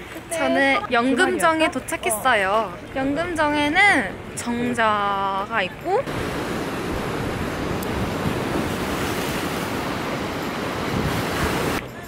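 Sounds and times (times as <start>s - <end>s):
wind rumbling on microphone: 6.0s - 11.9s
waves washing on rocky shore: 6.1s - 11.8s.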